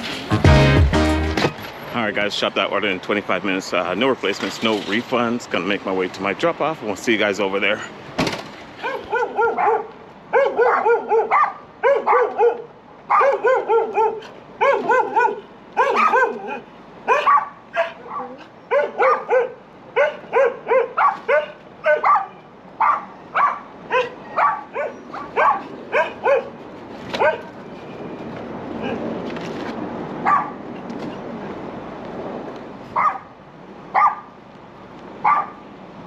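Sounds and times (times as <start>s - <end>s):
dog barking: 8.8s - 26.6s, 27.2s - 27.5s, 30.2s - 30.6s, 33.0s - 33.3s, 33.9s - 34.3s, 35.2s - 35.6s.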